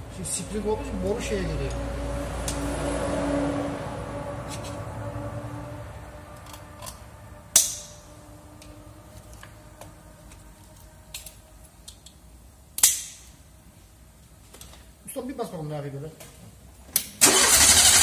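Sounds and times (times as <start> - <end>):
sharp snaps: 12.7 - 13.4.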